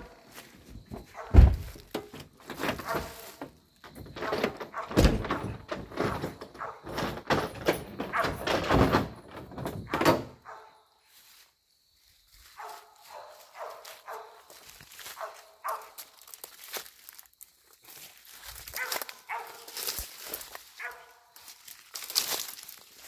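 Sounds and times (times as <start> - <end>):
loud thump: 1.3 - 1.8
footsteps through dry leaves: 3.0 - 3.4, 11.0 - 23.0.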